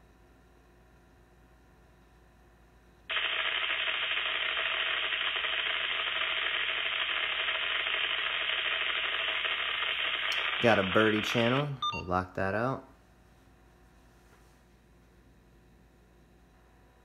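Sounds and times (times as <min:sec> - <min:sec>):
scanner static hiss: 0:03.1 - 0:12.9.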